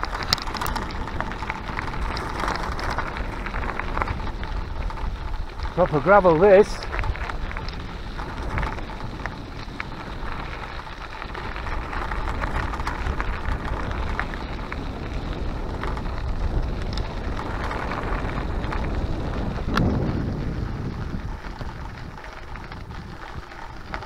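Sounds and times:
small stone clicks: 0.0 - 5.8
bike tyres crunching on gravel: 0.0 - 24.0
wind rumble on microphone: 0.0 - 24.0.

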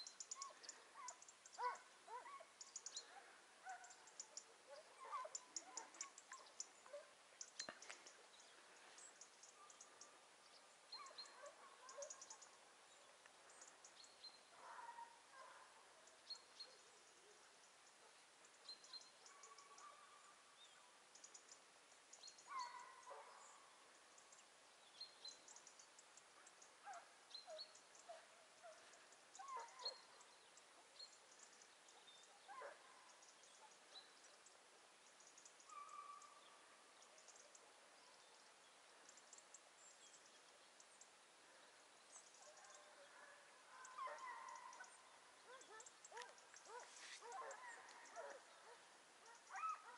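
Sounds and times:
small birds chirping: 0.0 - 49.9
distant hounds baying: 0.2 - 7.2, 10.9 - 13.2, 14.5 - 17.5, 22.5 - 23.6, 26.4 - 30.3, 35.6 - 36.6, 42.3 - 49.9.

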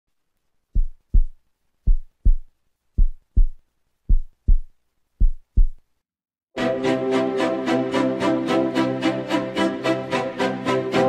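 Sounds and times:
heartbeat thumps: 0.8 - 5.8.

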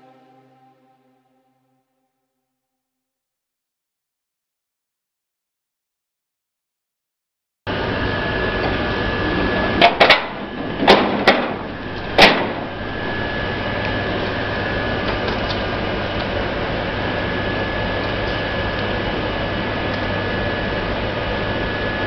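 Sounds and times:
high steady whine: 0.0 - 1.8, 7.7 - 22.0
low hum: 0.0 - 2.1, 9.6 - 18.4
steady rushing noise: 10.3 - 14.9.

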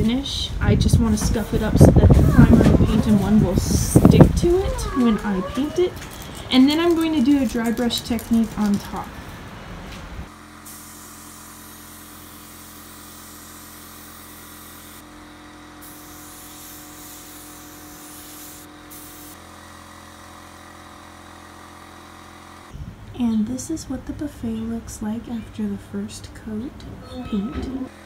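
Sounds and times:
spray gun hissing: 10.5 - 15.1, 15.8 - 19.4.

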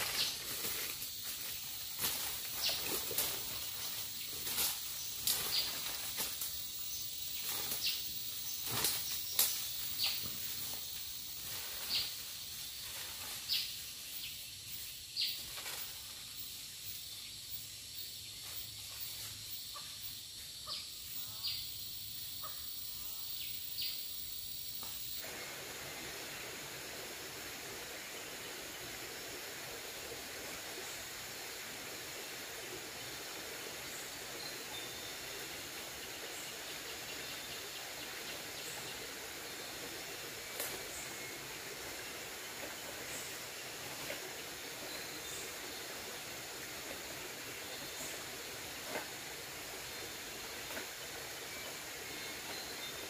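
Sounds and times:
faint outdoor hiss: 0.0 - 53.0.

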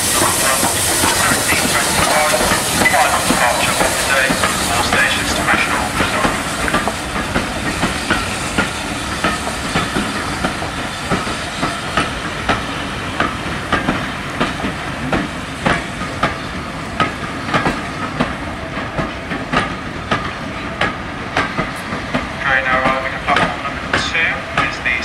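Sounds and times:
train rumble: 0.0 - 25.0
train wheels clicking over rail joints: 0.0 - 25.0.

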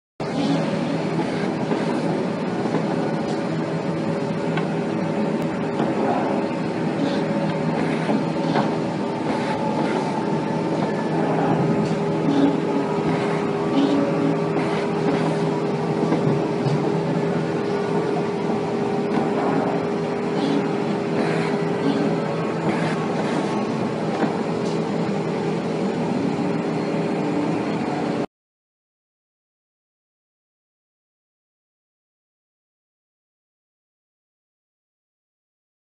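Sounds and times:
electric motors humming: 0.2 - 28.2.

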